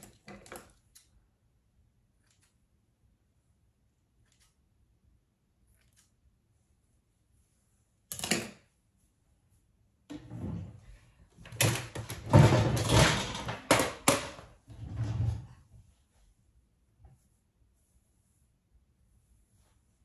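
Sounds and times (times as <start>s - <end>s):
rustling and clattering of objects: 10.1s - 16.1s.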